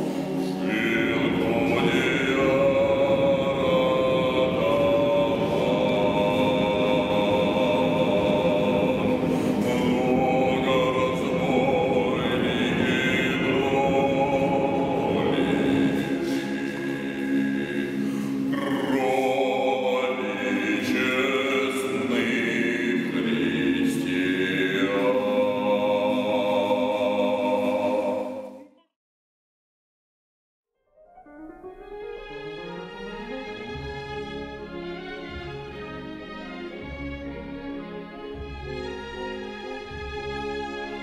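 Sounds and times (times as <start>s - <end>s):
choir singing sustained chords: 0.0s - 28.7s.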